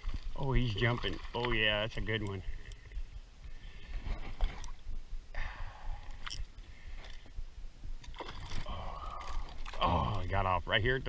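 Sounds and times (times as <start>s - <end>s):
steady low rumble: 1.8s - 11.0s
fish splashing water: 8.0s - 10.3s.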